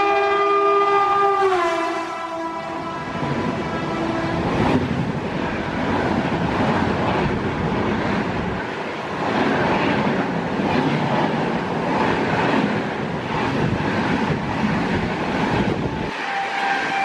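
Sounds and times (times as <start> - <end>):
locomotive horn: 0.0 - 4.7, 16.0 - 17.0
train wheels on rail roaring: 0.0 - 17.0
rushing air: 2.6 - 17.0.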